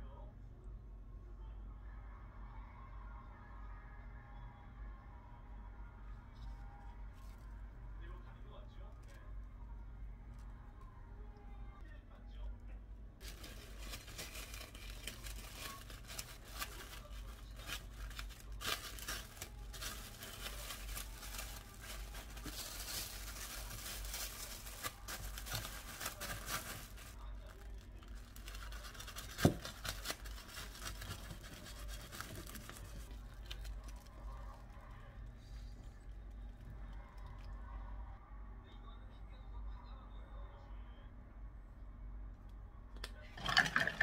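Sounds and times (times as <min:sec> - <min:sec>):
plastic wrap crinkling: 0:13.2 - 0:37.5.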